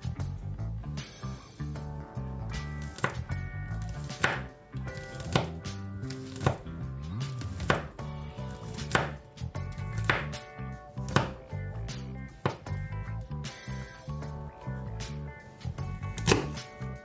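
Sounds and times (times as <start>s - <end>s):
soft background music: 0.0s - 17.0s
knife chopping on wooden board: 2.8s - 6.7s, 7.4s - 10.4s, 11.0s - 11.4s, 12.4s - 12.8s, 16.2s - 16.7s.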